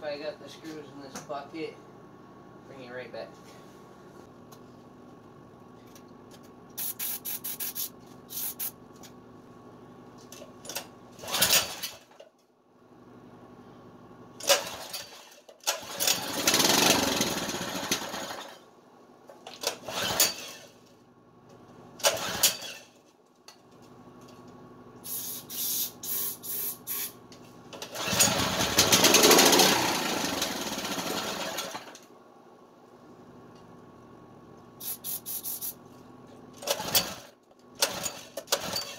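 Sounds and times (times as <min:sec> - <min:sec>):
recoil starter pulls: 0:14.4 - 0:18.6, 0:19.6 - 0:20.8, 0:22.0 - 0:22.9, 0:27.7 - 0:32.0, 0:36.6 - 0:38.9
engine sputtering: 0:27.9 - 0:31.9.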